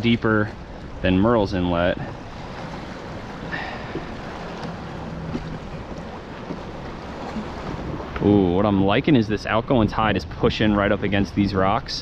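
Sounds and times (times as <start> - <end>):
water lapping around a kayak: 0.0 - 12.0.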